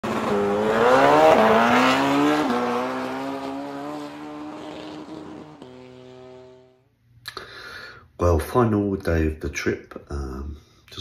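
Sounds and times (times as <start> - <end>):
high-revving engine accelerating: 0.0 - 6.7.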